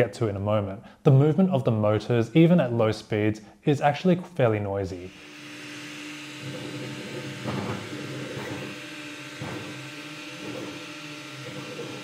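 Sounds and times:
printer stepper motors whirring: 5.3 - 12.0.

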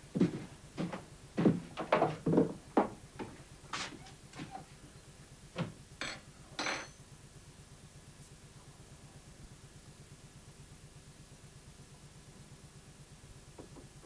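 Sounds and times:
glass bottle and spoon clinking: 6.0 - 7.0.

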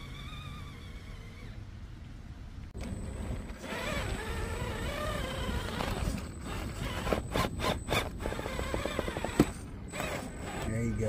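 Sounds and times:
electric motor whine: 2.8 - 11.0
toy truck scraping against rock: 3.5 - 11.0.

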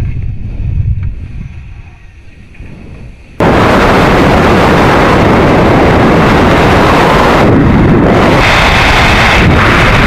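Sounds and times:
faint rumble: 0.0 - 10.0
rocket roar: 2.5 - 10.0.

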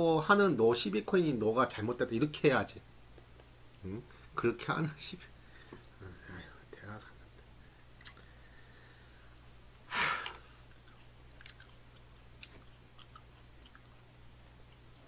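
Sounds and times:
man chewing: 7.8 - 8.3, 10.2 - 15.0
mouth clicks: 7.9 - 8.3.

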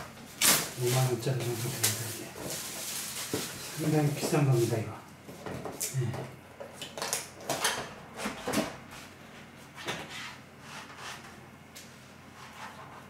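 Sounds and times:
stiff plastic packaging crackling: 0.4 - 4.8.

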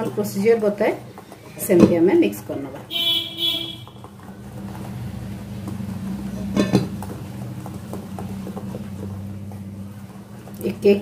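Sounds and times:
whisk stirring batter in bowl: 4.4 - 11.0.

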